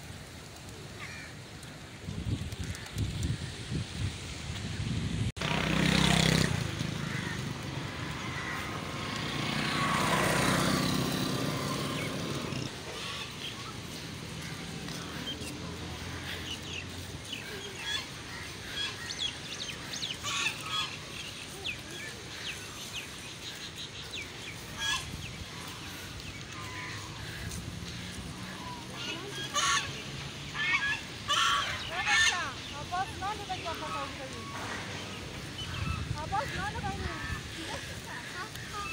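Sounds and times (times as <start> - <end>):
geese honking: 24.5 - 34.9.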